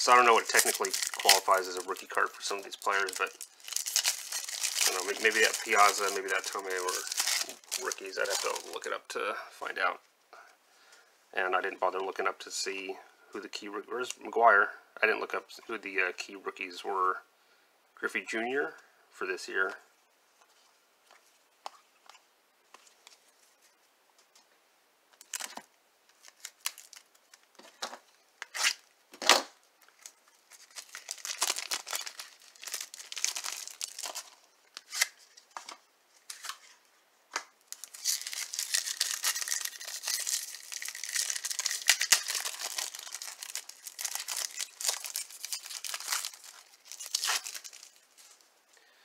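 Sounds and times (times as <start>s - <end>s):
plastic wrapper crinkling and tearing: 0.0s - 9.0s, 25.2s - 28.8s, 29.8s - 36.7s, 37.6s - 48.5s.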